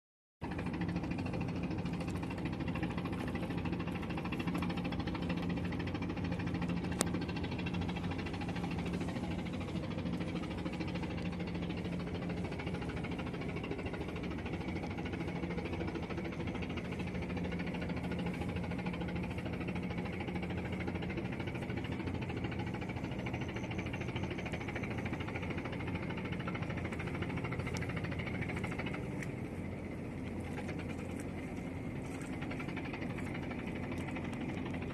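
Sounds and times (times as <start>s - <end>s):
engine humming: 0.4s - 34.9s.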